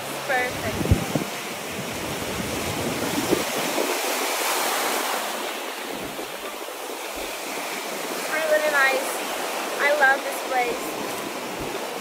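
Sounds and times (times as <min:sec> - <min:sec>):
wind buffeting microphone: 0:00.0 - 0:08.3, 0:10.7 - 0:12.0
ocean surf breaking on sand: 0:00.0 - 0:12.0.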